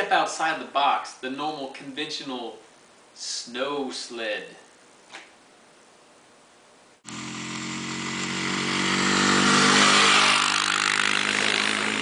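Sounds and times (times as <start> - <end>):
vehicle engine running: 7.0 - 12.0.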